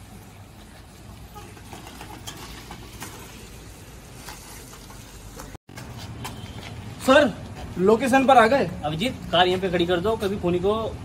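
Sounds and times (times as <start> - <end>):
bicycle rolling over dirt road: 1.3 - 5.6.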